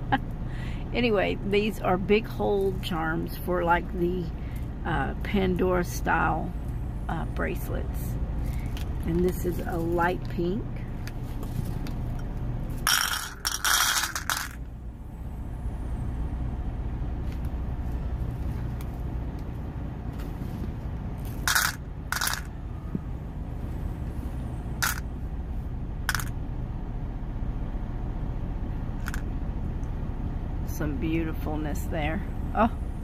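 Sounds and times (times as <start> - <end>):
truck engine idling: 0.0 - 33.0
metal beads rattling in plastic container: 12.8 - 14.7, 21.2 - 22.5, 24.8 - 25.0, 26.1 - 26.3, 29.0 - 29.2.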